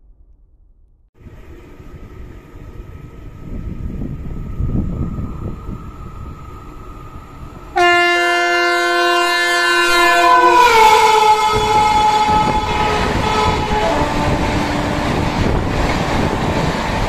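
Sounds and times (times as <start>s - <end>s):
train coaches rumbling and clattering: 1.2s - 17.0s
train horn: 7.7s - 15.2s.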